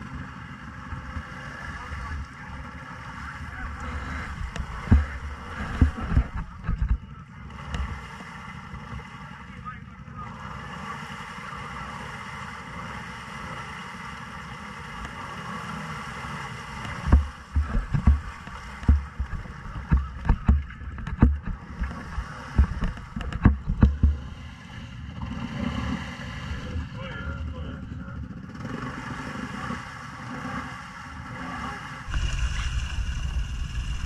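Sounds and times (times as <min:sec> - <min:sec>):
atv engine running: 0:00.0 - 0:34.0
thumps and splashes in mud: 0:04.4 - 0:07.0, 0:16.9 - 0:24.4.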